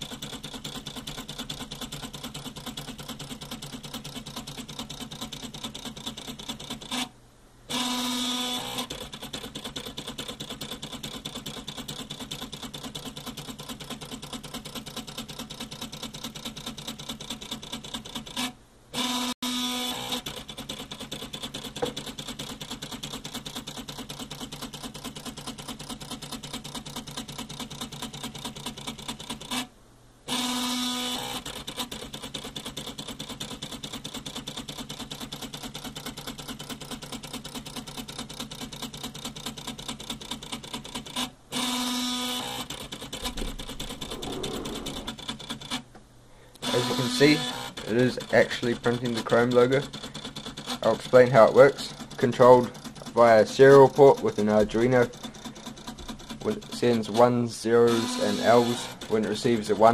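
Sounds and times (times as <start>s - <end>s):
stepper motor whirring: 7.7s - 12.4s, 14.6s - 23.4s, 41.5s - 45.8s, 46.6s - 49.7s, 56.4s - 59.9s.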